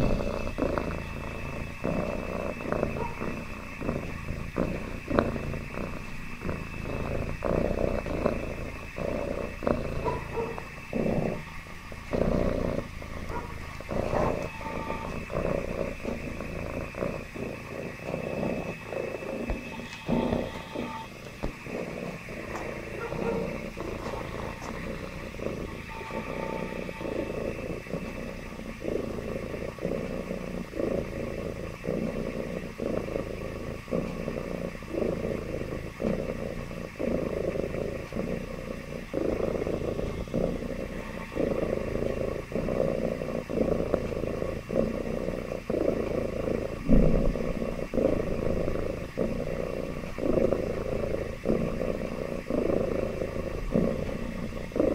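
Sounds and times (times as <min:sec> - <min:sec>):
cat purring: 0:00.0 - 0:54.9
thump: 0:46.9 - 0:47.4.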